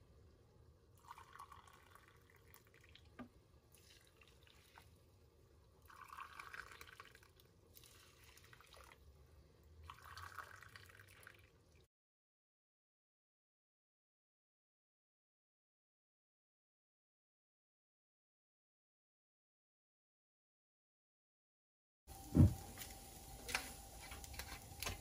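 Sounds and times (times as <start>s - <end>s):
water pouring: 0.9s - 5.1s, 5.8s - 9.2s, 9.8s - 11.9s.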